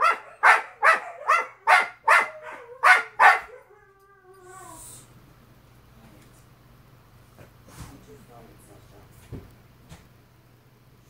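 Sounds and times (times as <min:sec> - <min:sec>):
huskies barking: 0:00.0 - 0:03.7.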